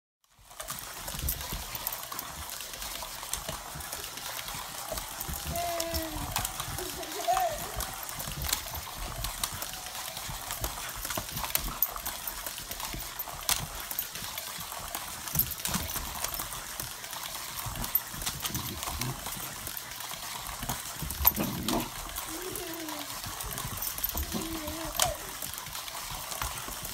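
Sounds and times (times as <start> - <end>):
dog growling: 21.0 - 25.4.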